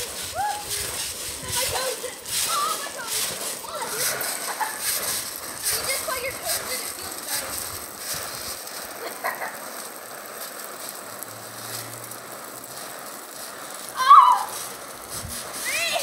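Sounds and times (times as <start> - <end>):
sprinkler water pattering on trampoline: 0.0 - 16.0
boy yelping: 0.4 - 0.8, 14.0 - 14.6.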